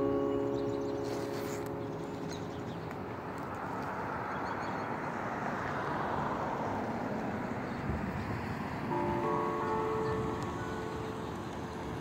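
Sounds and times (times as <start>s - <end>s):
church bells ringing: 0.0s - 4.2s, 8.9s - 12.0s
car passing on street: 0.0s - 12.0s.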